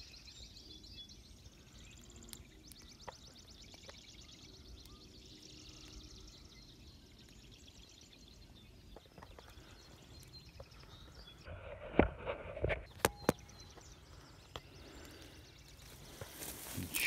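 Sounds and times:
footsteps through tall grass: 13.7s - 17.0s.

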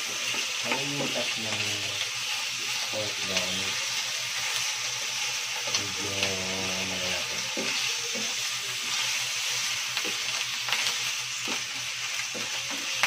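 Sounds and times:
pork sizzling in frying pan: 0.0s - 13.0s
spatula clicking and scraping pan: 7.4s - 13.0s.

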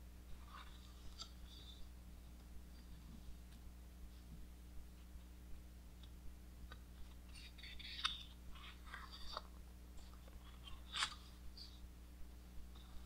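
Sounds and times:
page crackling as it flips: 7.1s - 11.3s
paper rustling: 7.1s - 11.7s.

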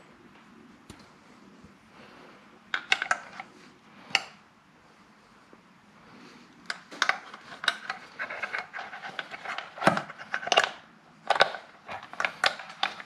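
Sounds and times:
sharp plastic clicks: 6.6s - 13.0s.

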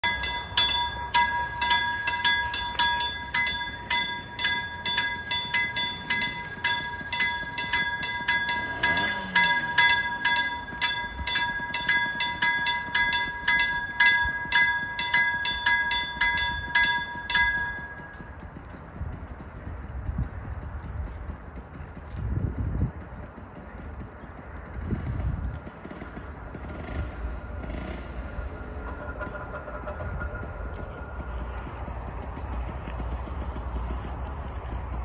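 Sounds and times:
level crossing warning bell: 0.0s - 18.5s, 27.6s - 32.7s.

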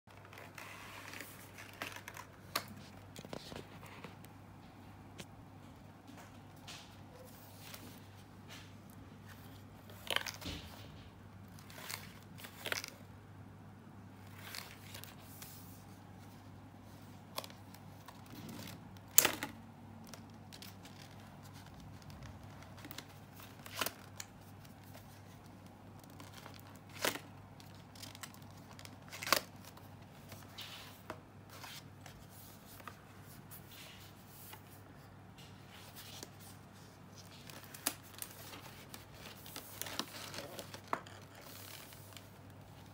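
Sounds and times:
paper rustling: 0.1s - 4.3s, 14.2s - 42.9s
low steady hum: 0.1s - 42.9s.

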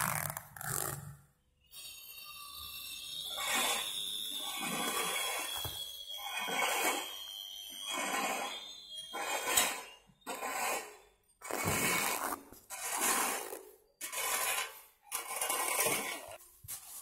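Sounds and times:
bag being handled and emptied: 0.0s - 1.0s, 11.4s - 12.7s.

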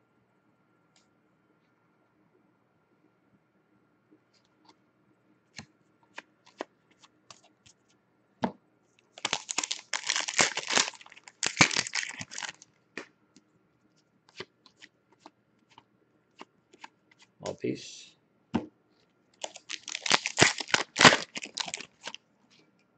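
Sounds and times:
foil pack rustling: 9.2s - 12.6s, 19.4s - 22.2s.

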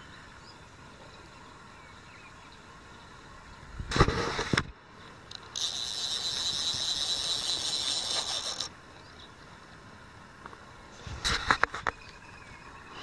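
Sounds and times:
fishing reel whirring: 5.5s - 8.7s.

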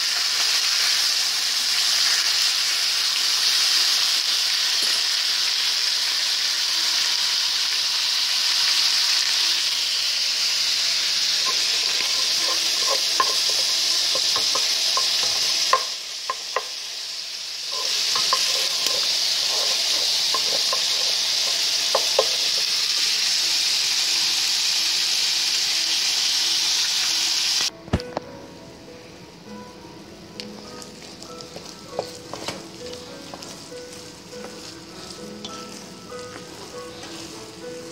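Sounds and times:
meat sizzling in frying pan: 0.0s - 27.7s, 30.6s - 37.9s
wooden spoon scraping pan: 11.3s - 15.9s, 17.7s - 22.6s.

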